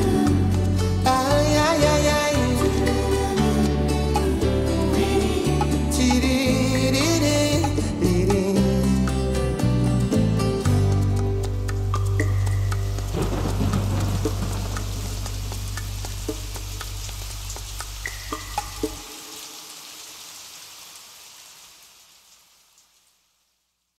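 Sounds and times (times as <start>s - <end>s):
rain-like hiss: 11.4s - 23.9s
drip-like plinks: 14.0s - 19.5s.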